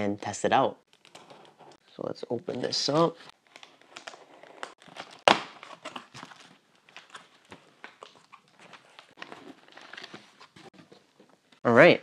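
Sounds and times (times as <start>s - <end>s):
cardboard rustling and scraping: 2.4s - 11.5s.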